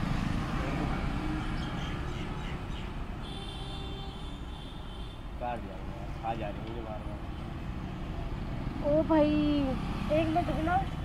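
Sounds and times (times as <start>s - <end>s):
scooters and motorbikes passing: 0.0s - 3.2s, 7.8s - 11.0s
road traffic rumble: 0.0s - 11.0s.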